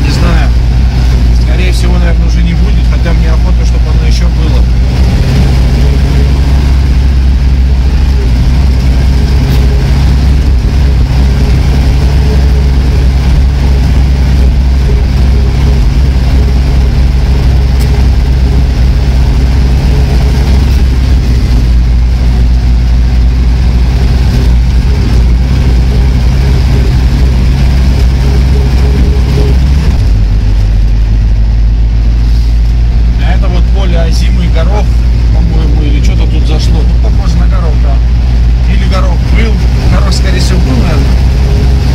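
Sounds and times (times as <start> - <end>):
vehicle engine running: 0.0 - 41.9.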